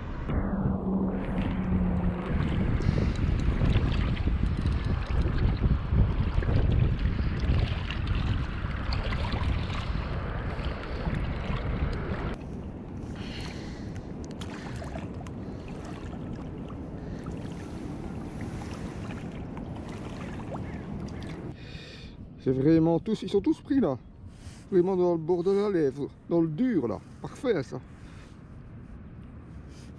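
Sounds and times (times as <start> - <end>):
wind rumbling on microphone: 0.0 - 24.7
rushing water: 6.2 - 12.3, 14.4 - 21.6.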